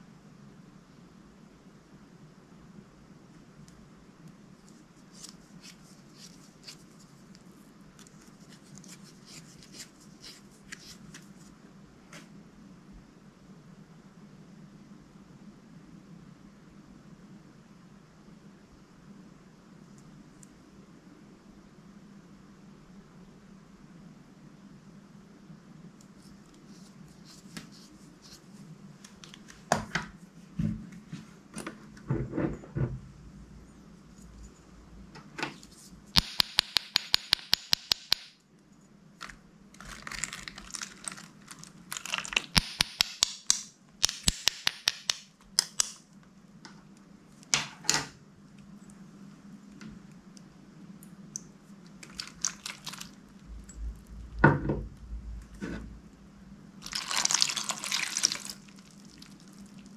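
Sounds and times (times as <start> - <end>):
steady low hum: 0.0 - 37.0, 48.2 - 56.8
slime crackling: 39.8 - 42.7, 52.0 - 53.4, 56.8 - 59.9
slime clicking and popping: 42.0 - 46.0.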